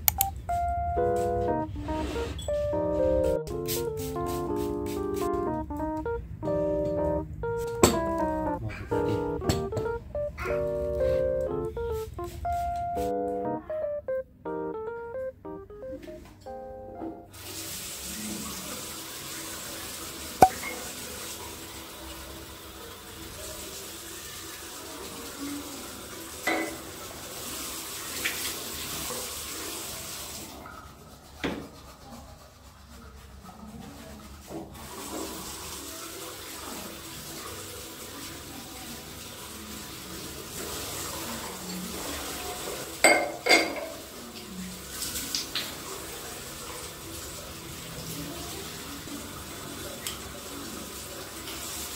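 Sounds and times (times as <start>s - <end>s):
tap running into basin: 20.4s - 21.0s
glass clinking on sink: 43.0s - 43.9s.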